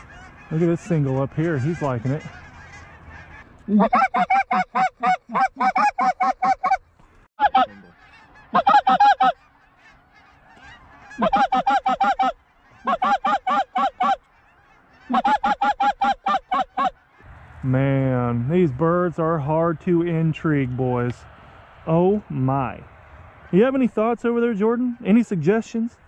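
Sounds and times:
goose call honks and clucks: 0.0s - 17.3s.

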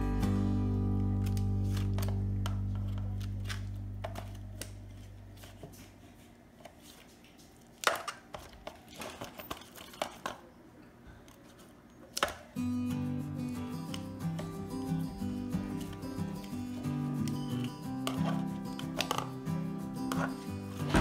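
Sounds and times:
guitar music: 0.0s - 5.5s, 12.6s - 21.0s
foil pan crinkling: 1.0s - 10.3s.

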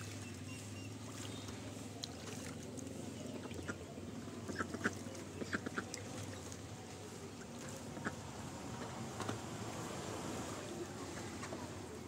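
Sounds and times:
duck splashing in water: 0.0s - 3.8s, 4.4s - 6.8s.

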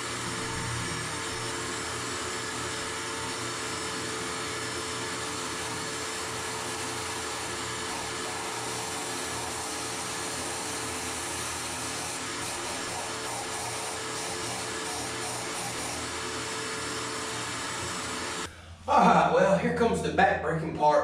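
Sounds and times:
shop vacuum motor whine: 0.0s - 18.5s
hose sucking dust: 5.4s - 18.5s.

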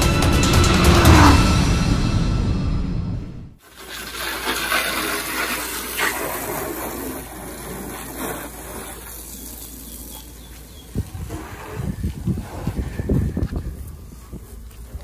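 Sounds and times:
hose spray hissing on car: 3.6s - 10.8s.

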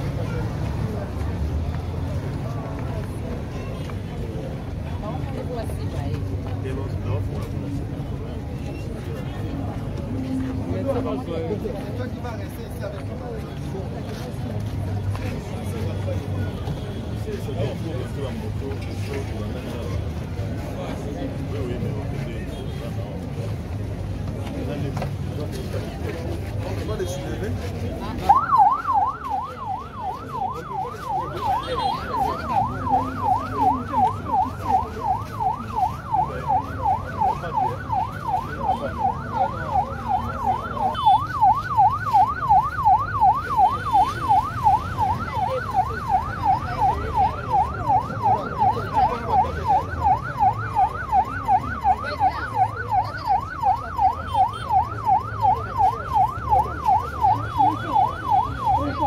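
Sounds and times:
ambulance siren yelping: 28.0s - 59.0s.

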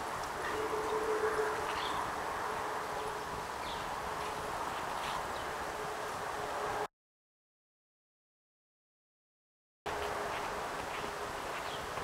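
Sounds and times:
outdoor background noise: 0.0s - 6.9s, 9.9s - 12.0s.

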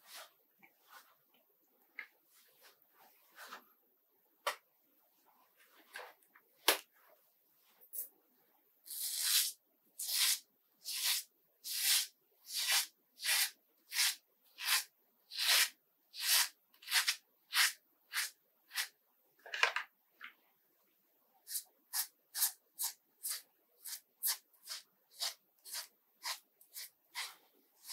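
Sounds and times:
brush strokes on scalp: 22.0s - 27.9s.

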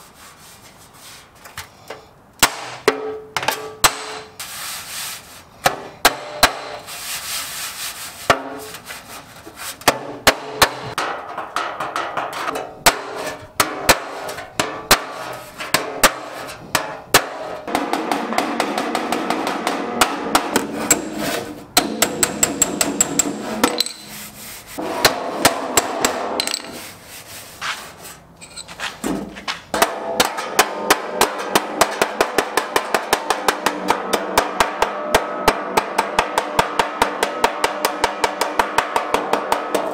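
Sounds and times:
hammer striking sheet metal: 2.4s - 4.4s, 5.6s - 6.9s, 9.8s - 26.8s, 29.7s - 39.9s.

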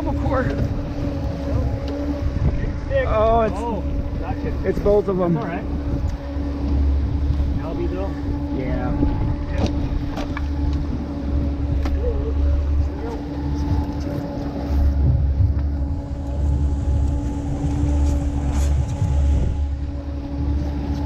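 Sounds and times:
boat motor running: 0.0s - 21.0s
sharp knocks on boat: 9.5s - 10.9s.

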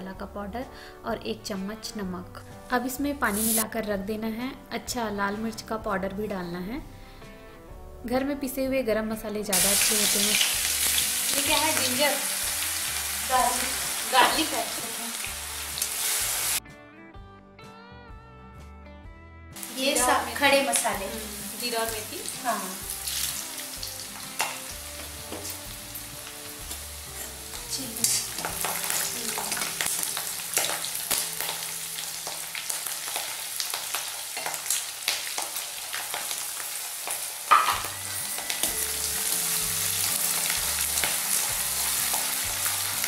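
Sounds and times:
oil sizzling with spices: 0.6s - 8.5s, 9.2s - 16.6s, 19.6s - 43.0s.

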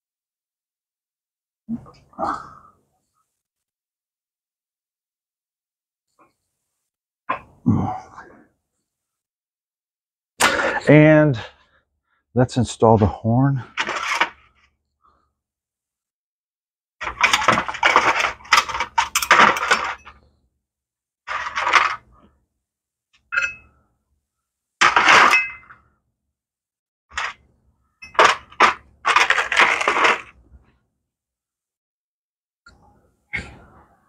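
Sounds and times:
metal parts and tools clinking: 17.0s - 20.2s.

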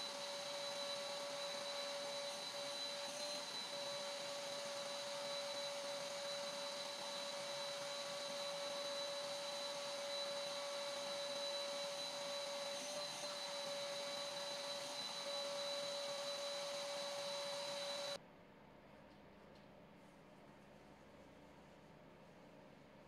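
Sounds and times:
vacuum cleaner running: 0.0s - 18.2s.

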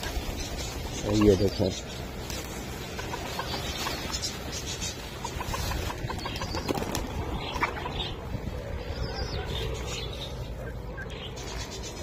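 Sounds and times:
pigeon wings flapping: 5.5s - 7.5s.

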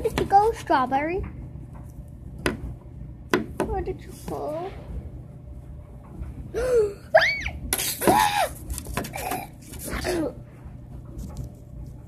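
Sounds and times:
child squealing and shrieking: 7.2s - 7.6s.

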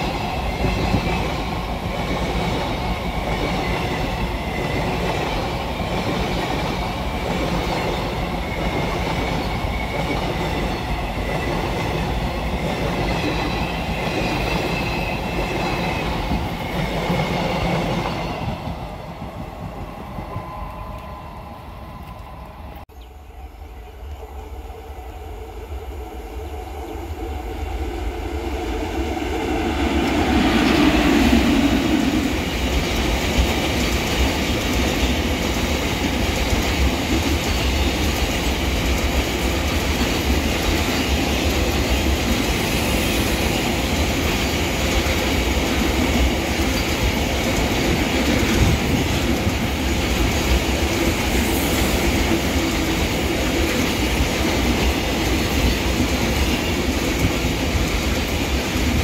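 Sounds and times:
freight train rumbling past: 0.0s - 59.0s
receding train: 0.0s - 59.0s
wheels clacking on rails: 28.2s - 59.0s.

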